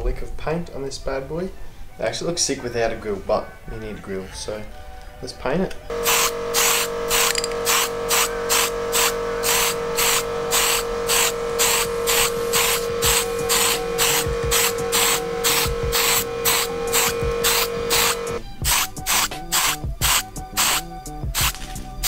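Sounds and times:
held synth note: 0:05.9 - 0:18.4
fast hi-hat beat: 0:05.9 - 0:22.0.

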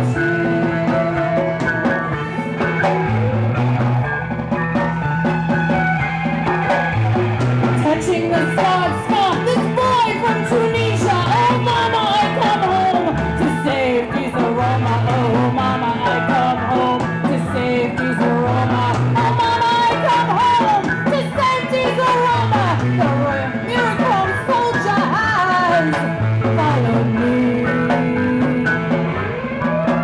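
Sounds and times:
woman singing: 0:00.0 - 0:02.5, 0:07.8 - 0:29.2
punk rock band playing: 0:00.0 - 0:30.0.

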